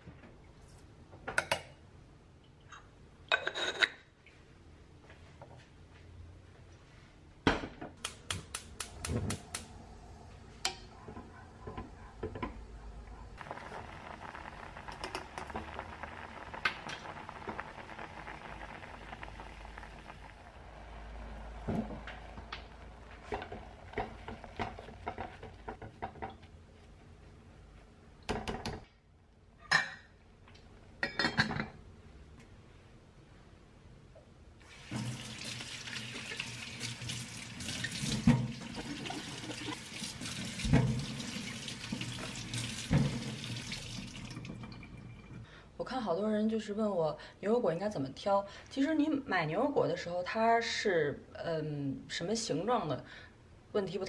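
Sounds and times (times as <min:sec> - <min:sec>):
dishes and utensils clinking: 0:03.3 - 0:04.0, 0:31.0 - 0:31.8.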